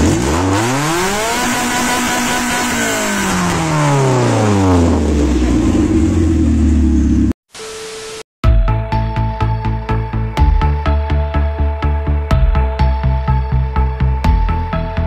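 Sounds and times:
car engine revving and idling: 0.0 - 7.4
short beep: 7.5 - 8.2.

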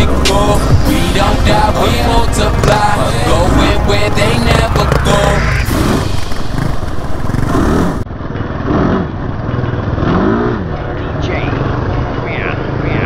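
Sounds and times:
quad engine revving: 0.0 - 13.0
second quad engine: 0.0 - 13.0.

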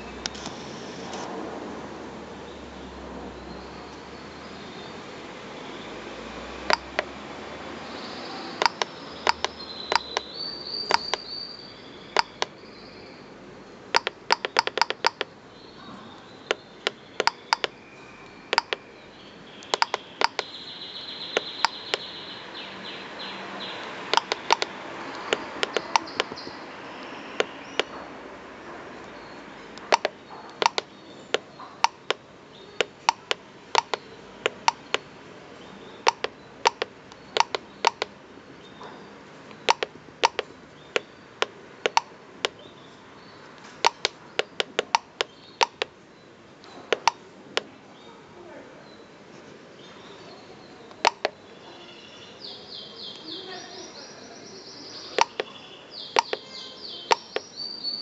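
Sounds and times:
pushbutton clicks: 6.7 - 7.1, 8.6 - 10.3, 10.9 - 11.3, 12.2 - 12.5, 13.9 - 15.3, 16.5 - 17.7, 18.5 - 18.8, 19.6 - 20.5, 24.1 - 26.4, 29.8 - 32.2, 32.8 - 35.0, 36.0 - 38.1, 39.6 - 42.6, 43.8 - 45.9, 46.9 - 47.7, 51.0 - 51.4, 55.2 - 55.5, 56.2 - 56.4, 57.1 - 57.4.

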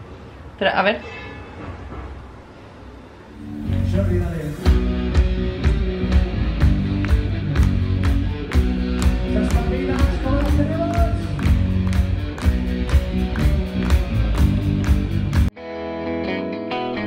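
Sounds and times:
live rock band playing: 3.6 - 17.0.

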